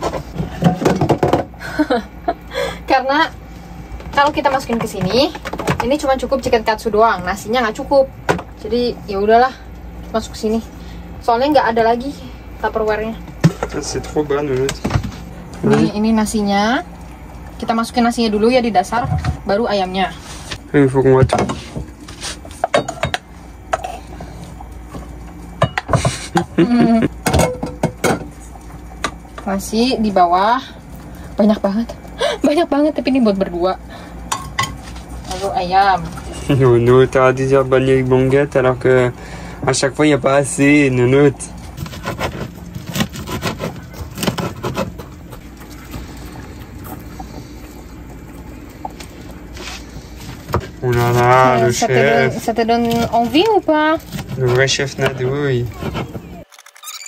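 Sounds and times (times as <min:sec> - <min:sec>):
steady low hum: 0:00.0 - 0:56.5
spoon scraping and knocking pots: 0:21.2 - 0:24.1.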